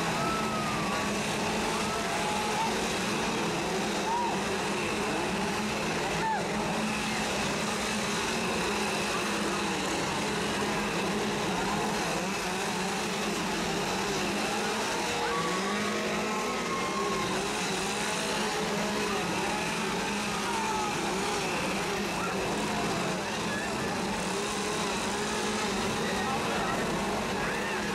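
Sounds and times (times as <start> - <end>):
chainsaws revving: 0.0 - 27.9.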